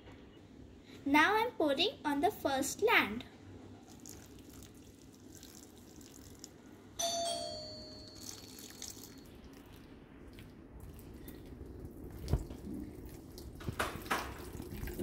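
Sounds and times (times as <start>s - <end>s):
water trickling onto soil: 3.8s - 6.7s, 8.2s - 15.0s
bell-like ding: 7.0s - 8.6s.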